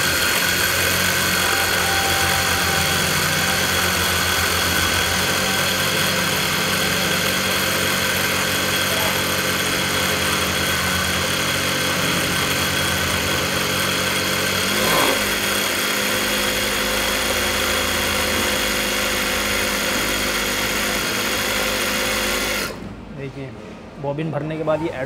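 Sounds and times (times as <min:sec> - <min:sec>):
sewing machine whirring: 0:00.0 - 0:22.8.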